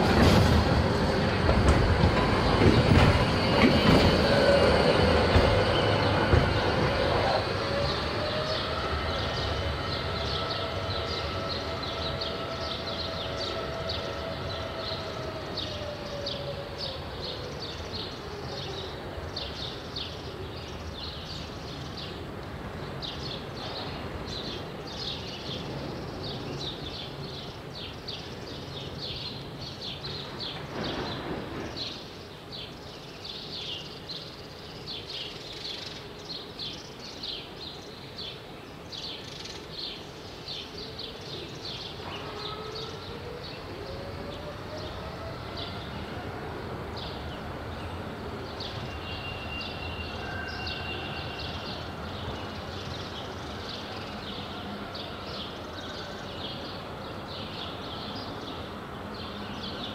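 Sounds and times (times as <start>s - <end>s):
tram motors whining: 0.0s - 17.6s.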